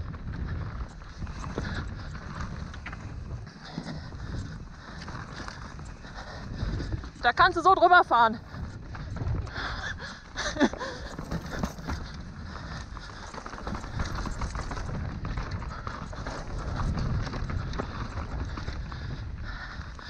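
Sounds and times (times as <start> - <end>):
bike rattling and knocking: 0.0 - 20.0.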